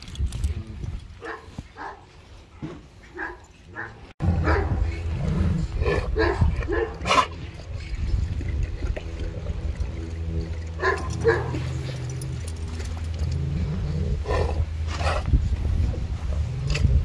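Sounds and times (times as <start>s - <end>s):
dogs barking and whining: 3.0s - 7.8s, 9.6s - 15.3s.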